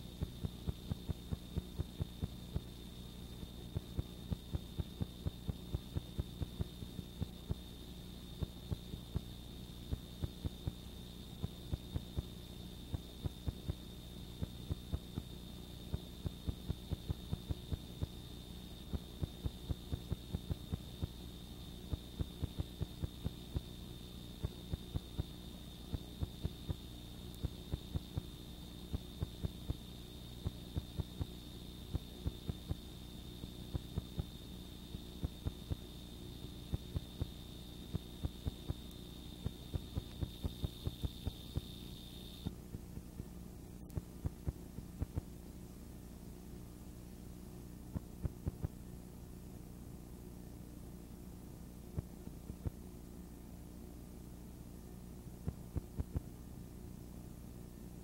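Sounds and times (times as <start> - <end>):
electrical mains hum: 0.0 - 58.0
crackling clicks: 38.4 - 41.7.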